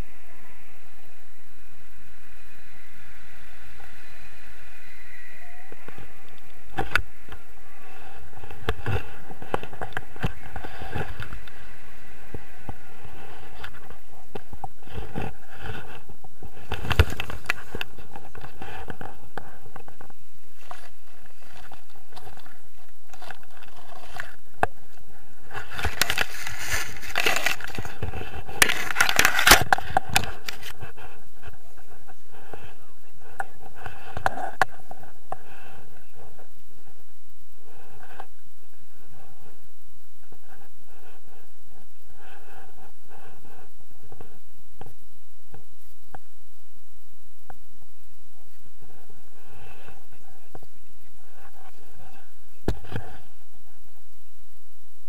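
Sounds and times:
wind noise on microphone: 0.0 - 55.0
scraping and rustling through weeds: 25.4 - 32.2.

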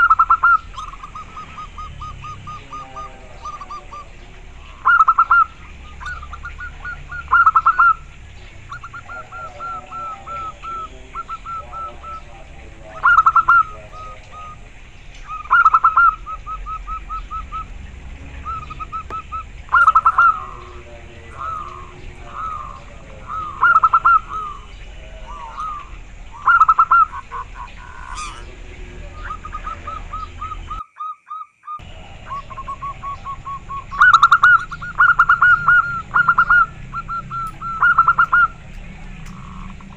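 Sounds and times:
dove cooing: 0.0 - 39.9.

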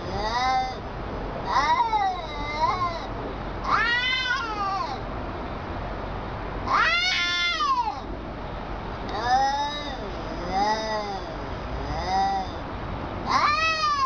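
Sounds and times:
cat yowling: 1.4 - 5.0, 6.6 - 8.1, 9.1 - 12.6, 13.3 - 14.0.

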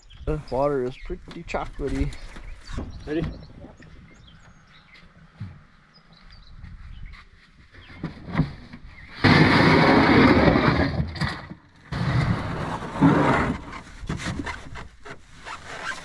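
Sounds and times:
canoe hull scraping over ground: 6.7 - 16.0.

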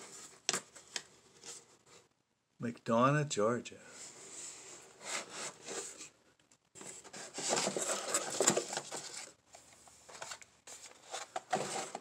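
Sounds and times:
cardboard and plastic rustling: 4.2 - 6.2, 6.8 - 12.0.

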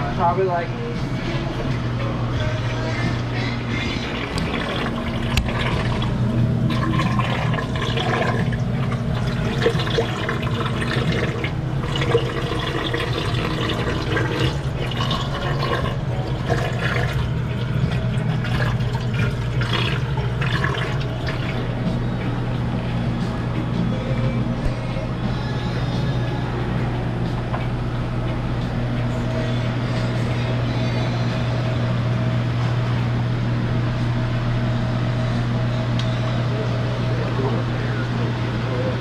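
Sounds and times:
low pump hum: 0.0 - 39.0
water running and splashing: 4.2 - 21.6.

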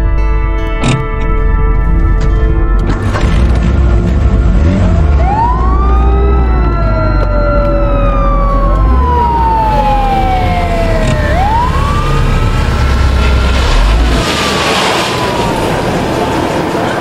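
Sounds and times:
low vehicle rumble: 1.0 - 17.0
ambulance siren wailing: 4.4 - 17.0.

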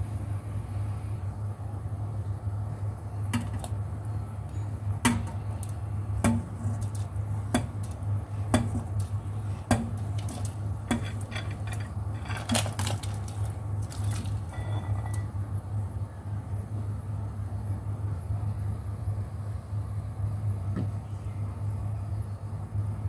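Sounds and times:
steady low hum: 0.0 - 23.0
bowl clinking against pot: 9.7 - 13.3.

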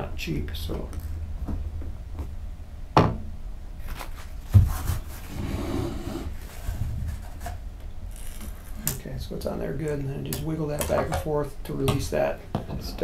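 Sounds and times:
paper towel rustling: 3.8 - 5.6.

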